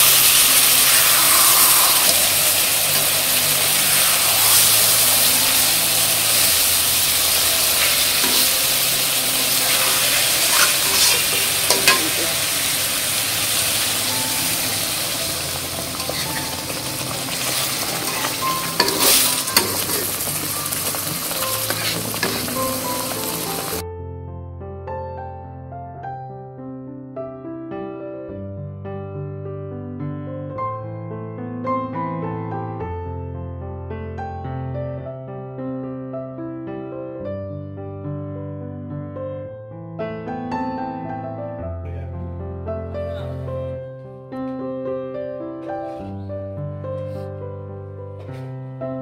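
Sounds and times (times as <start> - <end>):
fish sizzling in oil: 0.0 - 23.8
metal spatula scraping pan: 7.8 - 8.6, 9.6 - 12.3, 15.8 - 23.5.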